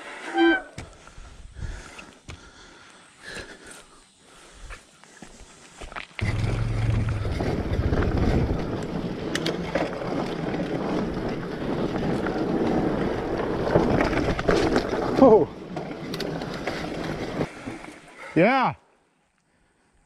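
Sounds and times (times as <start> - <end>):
motorcycle engine starting and revving: 6.2 - 13.2.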